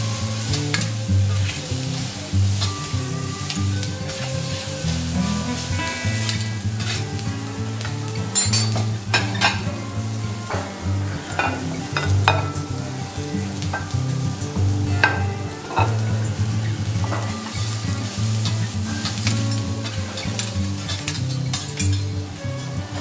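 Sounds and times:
background music with bass: 0.0 - 23.0
vegetables sizzling on griddle: 0.0 - 23.0
spatula scraping metal griddle: 8.2 - 23.0.

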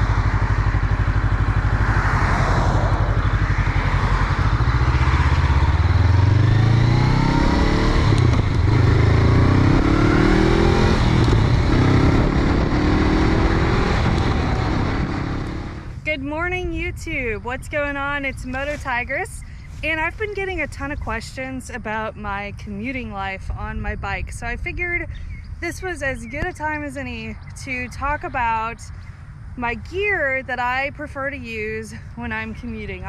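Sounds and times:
motorcycle engine accelerating: 0.0 - 16.1
wind rush over microphone: 9.8 - 16.0.

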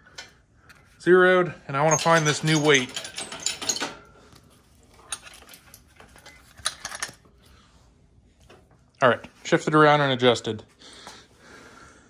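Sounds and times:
metal hook and strap clinking: 1.9 - 4.1.

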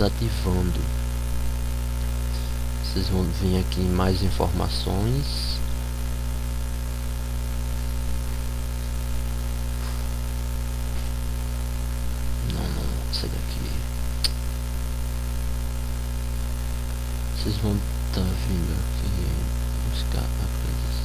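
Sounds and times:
electrical mains hum: 0.0 - 21.0
sharp click: 14.2 - 14.4.

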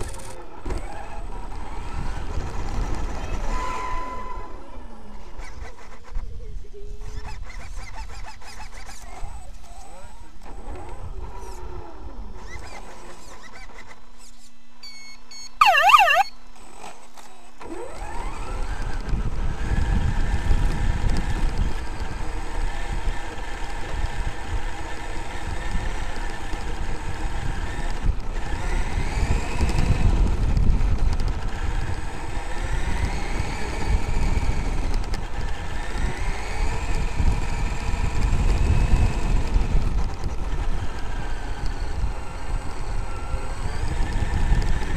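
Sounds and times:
short warbling tone: 15.6 - 16.3.

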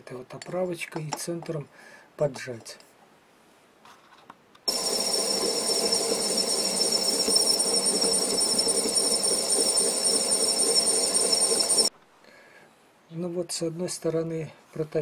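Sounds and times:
lathe high-pitched whine: 4.7 - 11.9
machine hum: 4.7 - 11.9.

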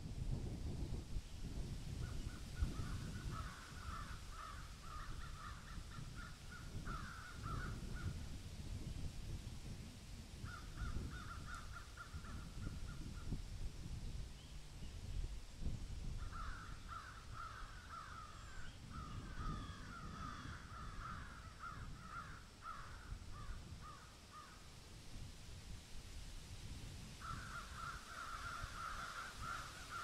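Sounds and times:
crows cawing: 2.7 - 7.8, 10.5 - 12.4, 16.2 - 18.6, 19.2 - 24.6, 27.2 - 30.0.

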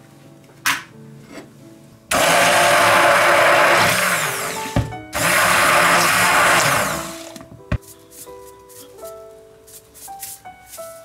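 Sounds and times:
immersion blender beating eggs: 2.1 - 7.3
knock: 4.8 - 5.0.

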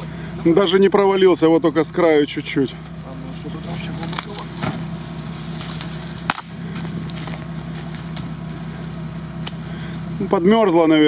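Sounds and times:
vehicle engine idling: 0.0 - 11.0
stick cracking frozen mud: 5.6 - 7.5.

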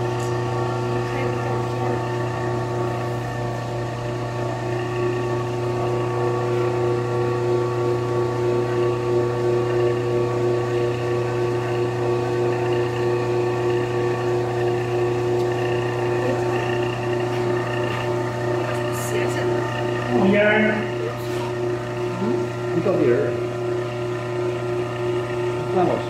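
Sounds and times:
drill bit boring into wood: 0.0 - 26.0
lathe motor hum: 0.0 - 26.0.

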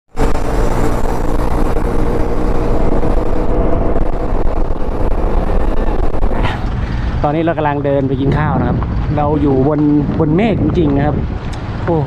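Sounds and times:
scooter engine running: 0.1 - 7.2
wind rumble on microphone: 0.1 - 12.0.

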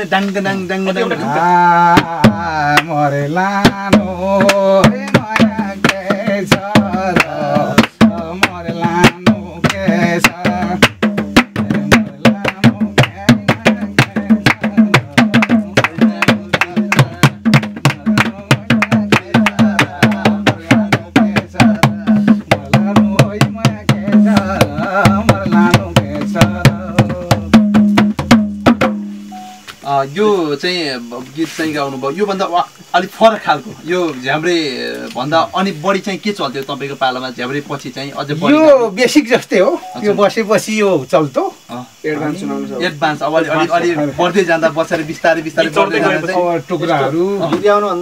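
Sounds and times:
man singing folk song: 0.2 - 27.7
hand drum fast rhythm: 1.2 - 29.4.

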